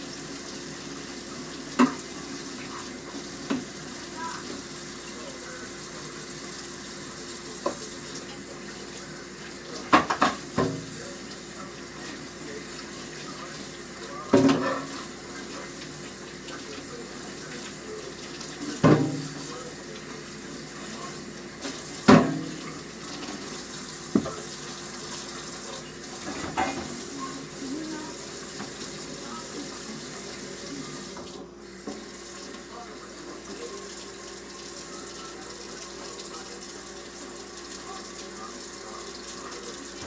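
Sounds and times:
dishes clinking against sink: 0:01.7 - 0:02.1, 0:09.8 - 0:10.9, 0:14.2 - 0:15.1, 0:18.3 - 0:19.6, 0:21.6 - 0:23.5, 0:24.1 - 0:24.5, 0:26.2 - 0:27.4
tap running into sink: 0:01.7 - 0:02.1, 0:03.2 - 0:03.8, 0:07.6 - 0:07.9, 0:09.7 - 0:10.9, 0:18.7 - 0:19.4, 0:21.6 - 0:24.5.

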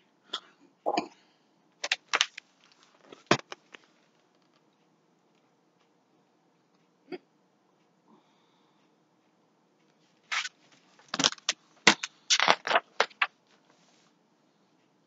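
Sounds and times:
book scraping and rustling: 0:10.3 - 0:14.1.

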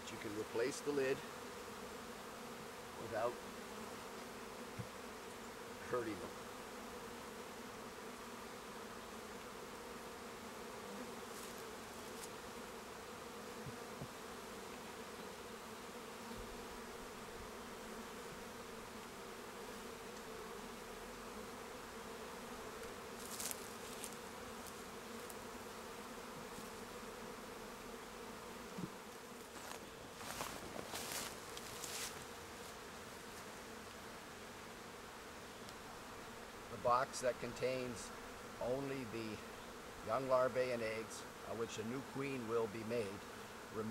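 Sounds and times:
bees buzzing: 0:00.0 - 0:43.9
short rustles: 0:29.5 - 0:32.2.

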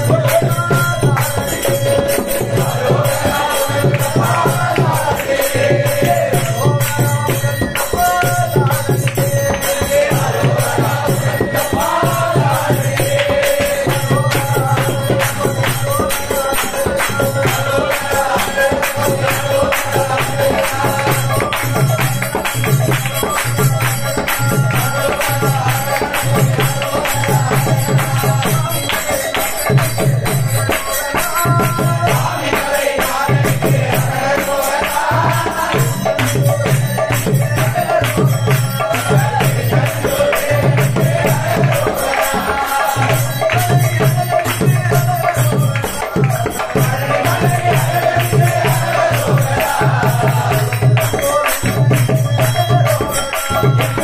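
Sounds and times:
men singing together: 0:00.0 - 0:54.0
hand clapping: 0:12.6 - 0:54.0.

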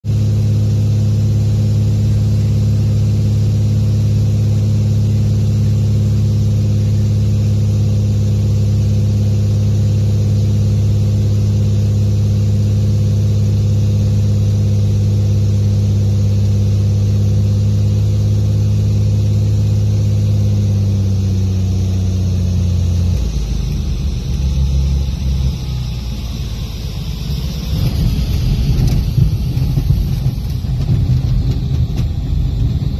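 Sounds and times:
aircraft engine and propeller droning: 0:00.1 - 0:32.9
rough uneven rumble: 0:27.3 - 0:32.9.

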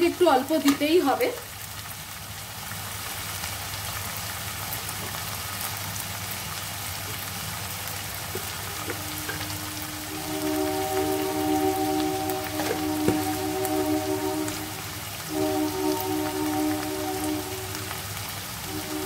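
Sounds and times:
onions sizzling in hot oil: 0:00.0 - 0:19.0
music with long held notes: 0:07.6 - 0:19.0.

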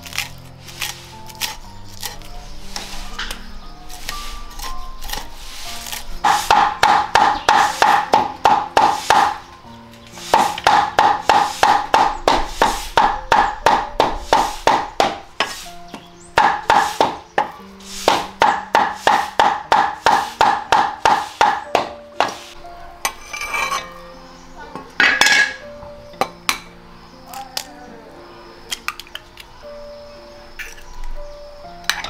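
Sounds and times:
soft background music: 0:00.0 - 0:32.0
cleaver chopping on wooden block: 0:05.8 - 0:09.4, 0:10.2 - 0:15.6, 0:16.4 - 0:22.5.

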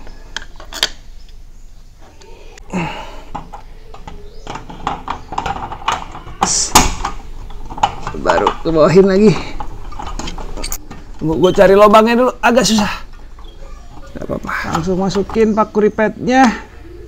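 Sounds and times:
metal lock plate clicks and scrapes: 0:09.5 - 0:11.2.

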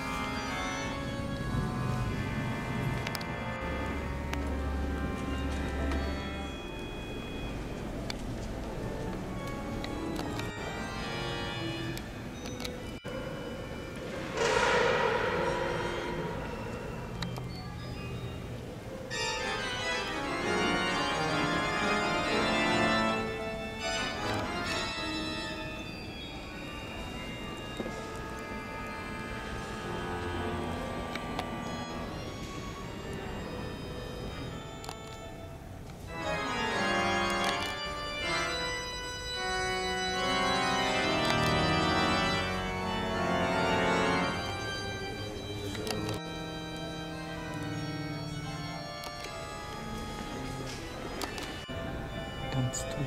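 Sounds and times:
organ playing sustained chords: 0:00.0 - 0:53.0.

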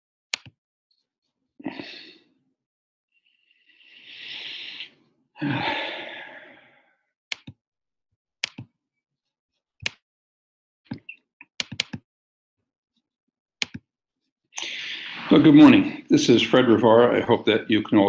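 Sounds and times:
person breathing out heavily: 0:03.7 - 0:06.9, 0:14.6 - 0:15.4
computer clicks: 0:08.4 - 0:08.6, 0:10.9 - 0:12.0.

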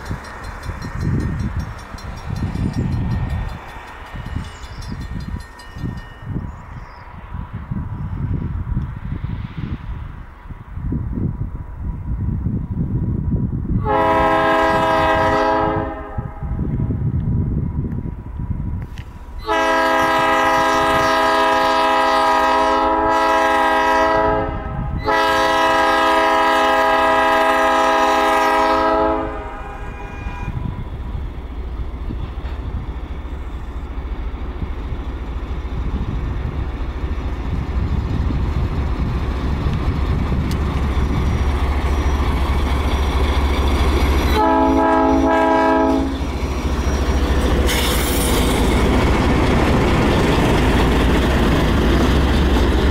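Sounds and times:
locomotive horn blasts: 0:13.8 - 0:16.6, 0:19.4 - 0:30.7, 0:44.3 - 0:46.3
diesel engine rumble: 0:29.2 - 0:52.9.

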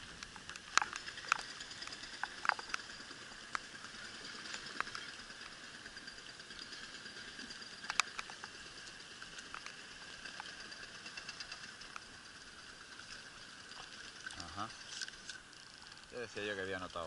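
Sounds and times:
raindrops ticking on camera: 0:00.2 - 0:03.8
rain pattering: 0:13.2 - 0:17.0.

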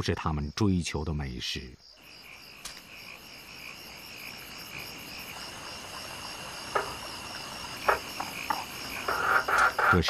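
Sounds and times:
night insects chirring: 0:00.0 - 0:10.0
frog call: 0:04.3 - 0:10.0.

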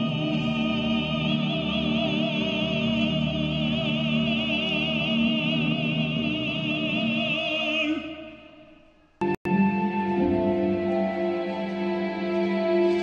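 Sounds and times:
sustained musical accompaniment: 0:09.2 - 0:13.0.

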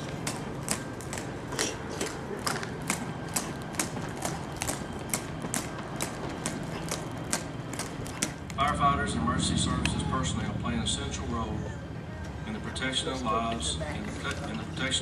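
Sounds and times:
marching footsteps on concrete: 0:00.0 - 0:08.6.

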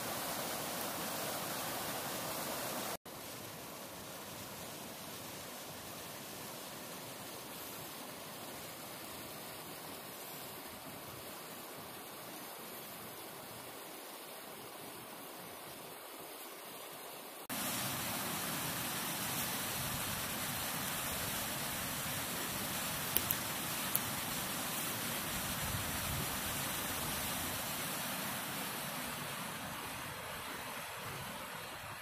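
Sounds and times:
creek water flowing over rocks: 0:00.0 - 0:32.0.

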